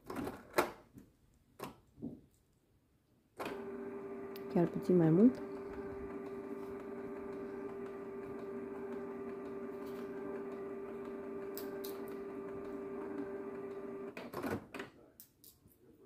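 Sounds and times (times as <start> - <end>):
printer motor hum: 3.4 - 14.2.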